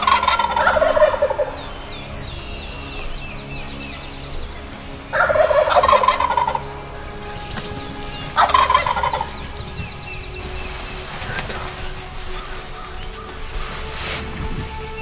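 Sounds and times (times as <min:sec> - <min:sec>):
turkey gobbling: 0:00.0 - 0:01.6, 0:05.1 - 0:06.6, 0:08.4 - 0:09.4
small birds trilling: 0:00.0 - 0:13.6.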